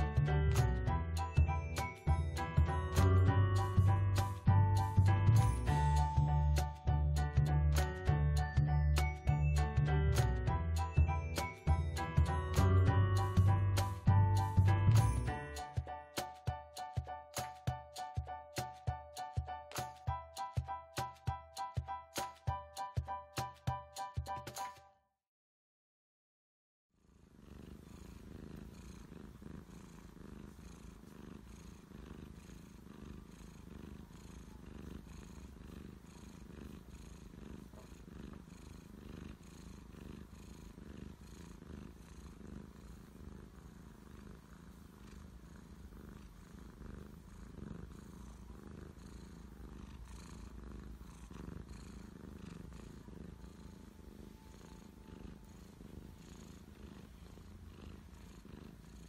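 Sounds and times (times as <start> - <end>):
cat purring: 0.0 - 7.9, 11.0 - 15.8, 27.0 - 59.0.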